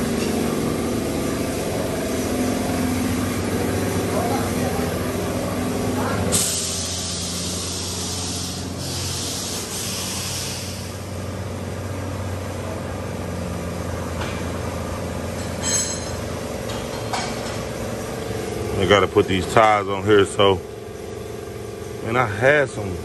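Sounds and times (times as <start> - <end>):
vehicle engine idling: 0.0 - 23.0
air hissing: 6.2 - 11.3.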